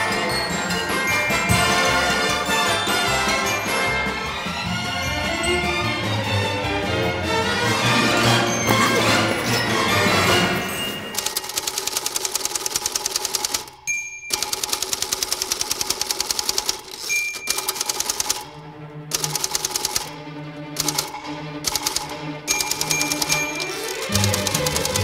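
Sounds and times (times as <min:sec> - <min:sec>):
background music: 0:00.0 - 0:12.0, 0:17.5 - 0:25.0
rapid even clicking: 0:11.1 - 0:18.5, 0:19.1 - 0:20.1, 0:20.8 - 0:25.0
bright ding: 0:13.9 - 0:14.4.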